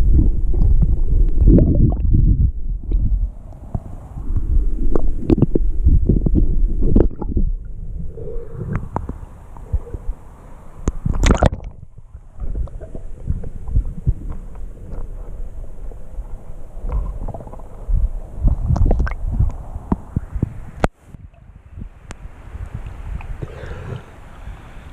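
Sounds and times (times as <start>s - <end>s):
muffled underwater rumbling and gurgling: 0.0s - 21.4s
water splash: 10.9s - 13.8s.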